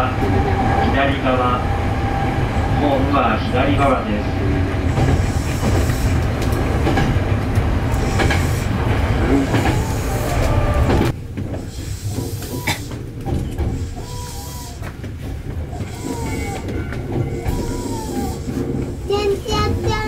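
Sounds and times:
train rumbling: 0.0s - 20.0s.

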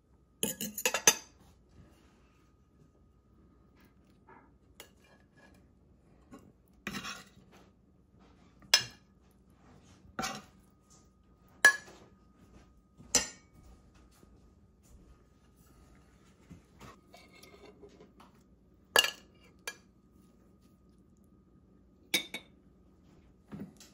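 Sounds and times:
plates and cutlery clinking: 0.4s - 1.4s, 11.5s - 12.2s, 13.0s - 13.7s, 19.0s - 19.9s.

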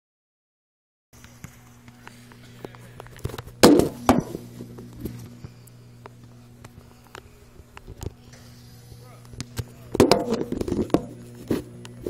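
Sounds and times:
steady low hum: 1.2s - 12.0s.

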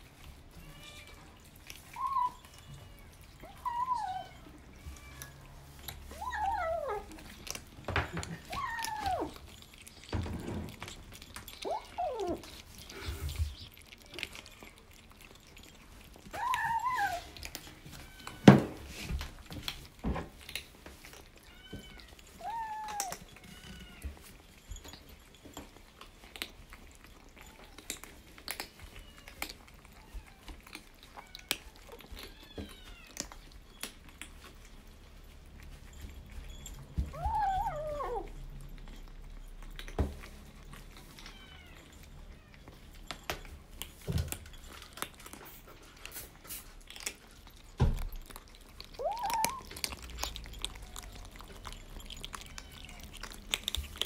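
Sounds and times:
kittens crunching dry kibble: 0.0s - 54.0s
kitten meowing: 49.0s - 49.7s.

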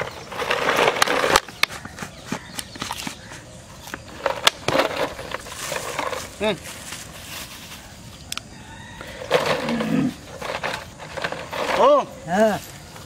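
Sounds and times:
rustling rush: 4.2s - 8.2s.

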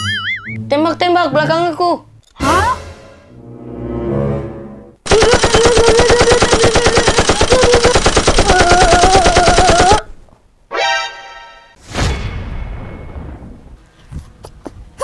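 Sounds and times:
rapid machine-gun fire: 5.0s - 10.0s.

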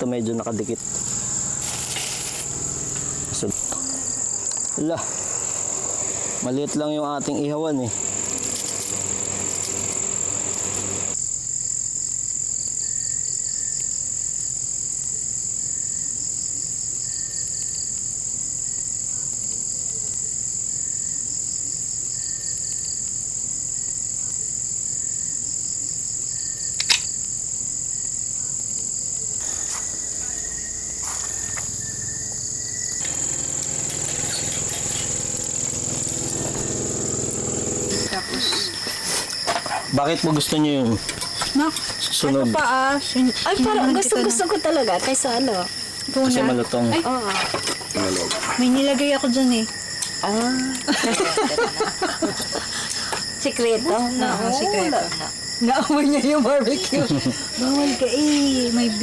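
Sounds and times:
crickets trilling: 0.0s - 59.0s
faint pulsing insect chirp: 0.0s - 59.0s
sharp click: 26.8s - 27.2s.

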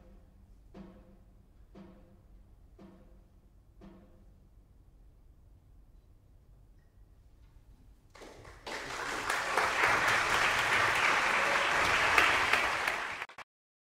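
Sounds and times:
audience applause: 8.2s - 13.4s.

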